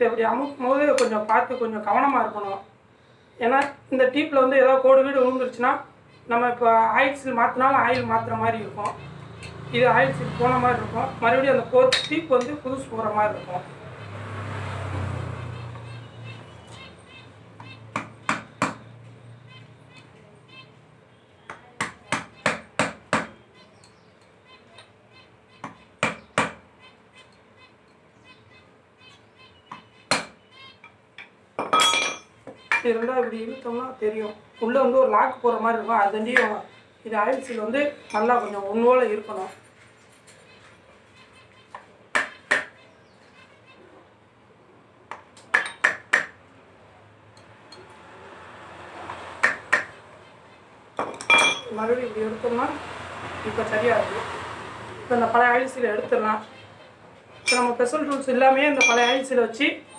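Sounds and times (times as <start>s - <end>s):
sharp metal knocks: 21.8s - 23.4s, 25.6s - 26.6s, 29.7s - 30.4s, 45.5s - 46.4s, 58.8s - 59.2s
metal-on-metal clinks: 31.6s - 32.9s, 51.0s - 51.7s, 57.4s - 57.9s, 58.8s - 59.3s.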